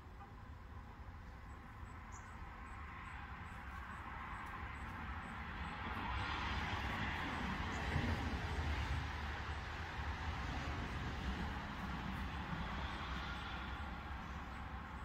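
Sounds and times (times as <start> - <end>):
vehicle passing on road: 0.9 - 15.0.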